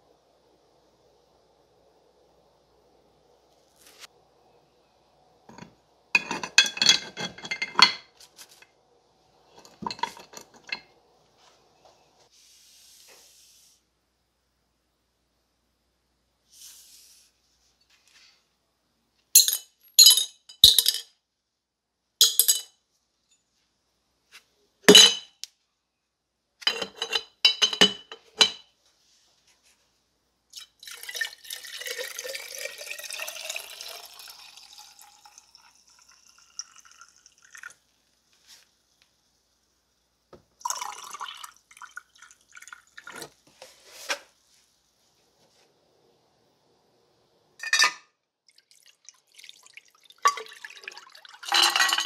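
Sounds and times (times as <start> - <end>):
metal parts clinking against glass: 5.5 - 8.1, 9.6 - 10.8, 26.6 - 28.6, 51.5 - 52.0
liquid pouring into jar: 30.6 - 37.8, 40.6 - 43.4, 48.5 - 52.0.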